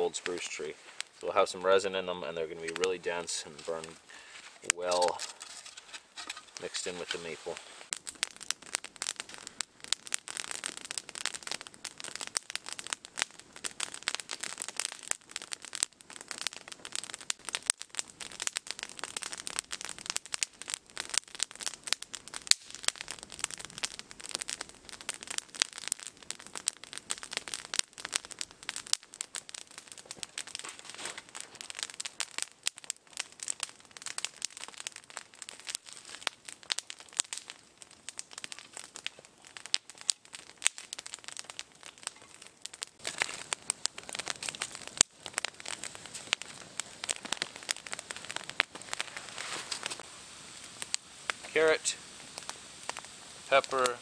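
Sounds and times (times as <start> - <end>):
campfire crackling and popping: 0.0 - 54.0.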